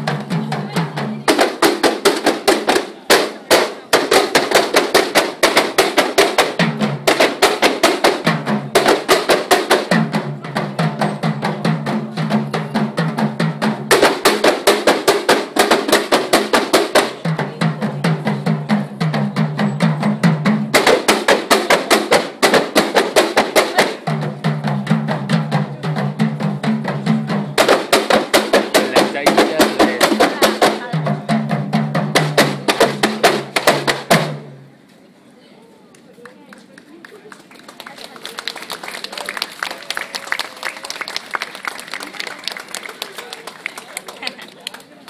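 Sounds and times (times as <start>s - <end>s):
frame drums beating: 0.0s - 34.6s.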